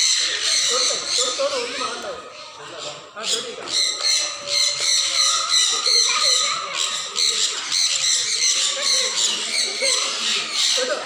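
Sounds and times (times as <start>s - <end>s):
parrots squawking and chattering: 0.0s - 11.0s.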